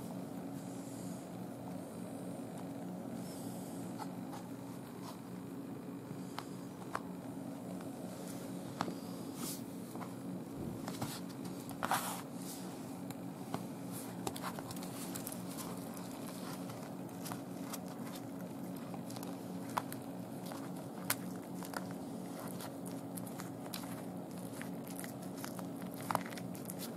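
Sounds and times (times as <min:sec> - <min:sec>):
steady low hum: 0:00.0 - 0:26.9
cat chewing with wet crunches: 0:13.9 - 0:26.9.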